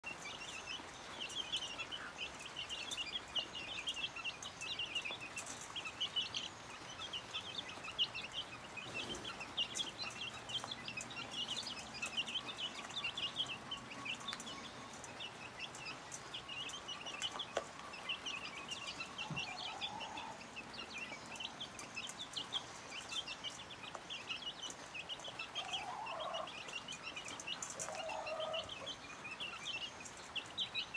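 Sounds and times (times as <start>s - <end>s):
chicks peeping: 0.0s - 30.9s
hen clucking: 4.9s - 29.6s.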